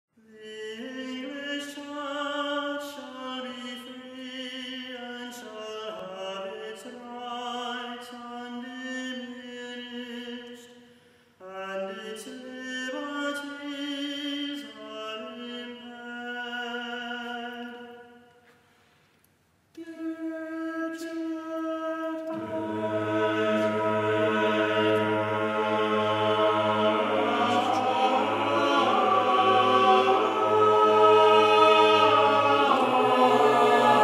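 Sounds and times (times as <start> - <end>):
choir singing held notes: 22.2 - 34.0.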